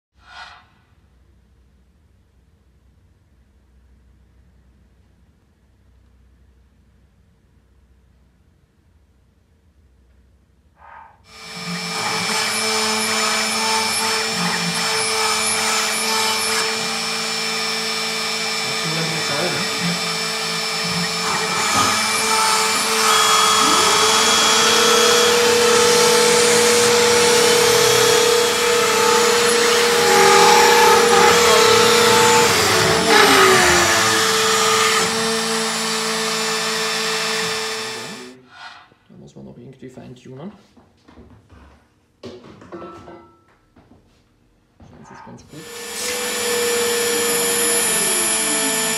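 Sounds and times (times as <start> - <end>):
router milling through plywood: 11.3 - 38.4, 45.5 - 48.9.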